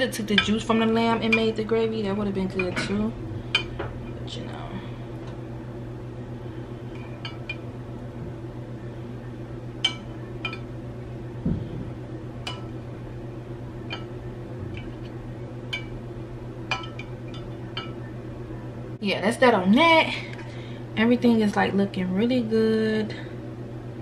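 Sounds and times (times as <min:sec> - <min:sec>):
steady low hum: 0:00.0 - 0:24.0
soft thump: 0:11.4 - 0:11.9.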